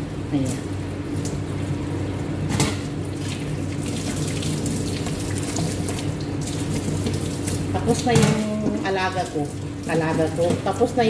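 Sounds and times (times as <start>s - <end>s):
kitchen tap running into sink: 3.2s - 11.0s.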